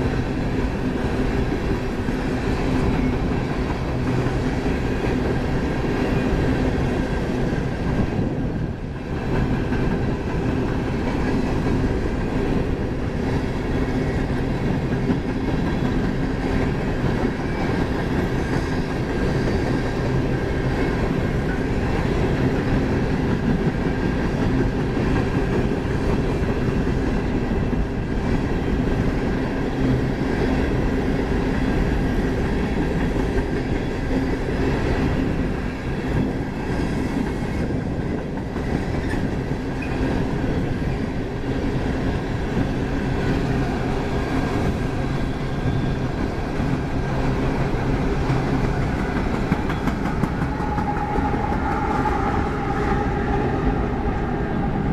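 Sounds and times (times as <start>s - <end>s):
freight train rumbling past: 0.0s - 54.9s
wheels clacking over rail joints: 46.9s - 54.6s
steady high tone: 49.8s - 54.9s.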